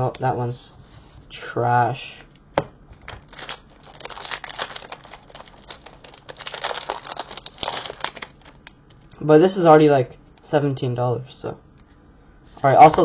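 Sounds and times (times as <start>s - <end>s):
foil wrapper crinkling: 2.9s - 9.2s.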